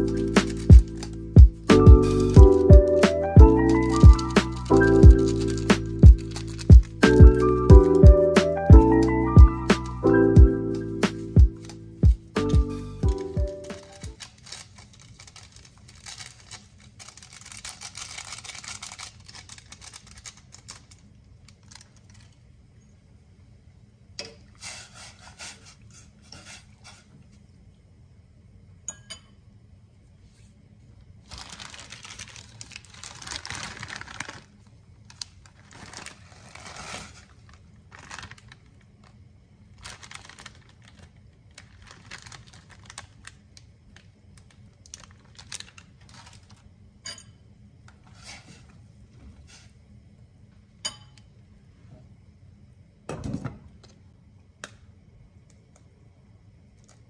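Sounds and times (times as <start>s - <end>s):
plastic packet crinkling and tearing: 0.0s - 8.0s, 11.5s - 22.4s, 31.2s - 46.6s
low steady hum: 0.0s - 24.6s
clinks against metal pot: 50.8s - 51.3s.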